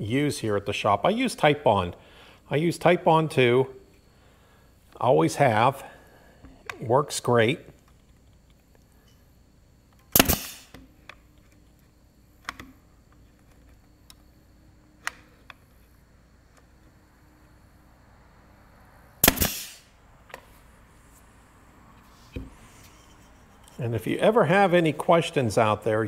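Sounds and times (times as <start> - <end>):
nail gun firing: 10.1 - 10.8, 19.2 - 19.8.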